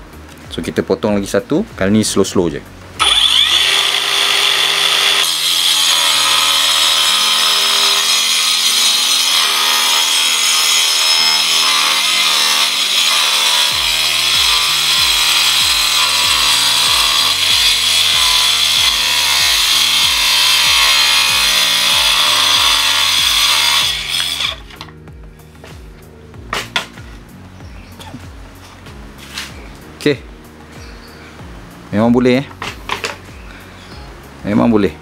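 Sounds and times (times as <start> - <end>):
circular saw cutting wood: 3.0 - 25.0.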